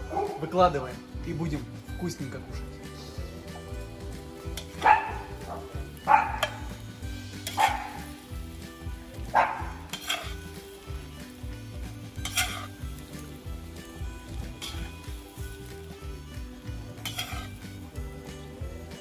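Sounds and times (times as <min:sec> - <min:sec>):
food sizzling: 0:01.0 - 0:19.0
metal spoon scraping pot: 0:04.5 - 0:04.8, 0:09.9 - 0:10.5, 0:12.2 - 0:12.9, 0:14.5 - 0:15.0, 0:16.9 - 0:17.6.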